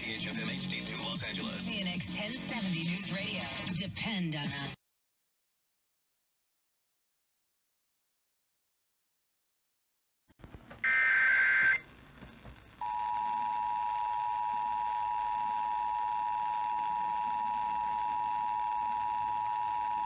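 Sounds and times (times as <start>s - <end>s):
shrill warbling data burst: 10.8s - 11.8s
two-tone alert signal: 10.8s - 11.8s.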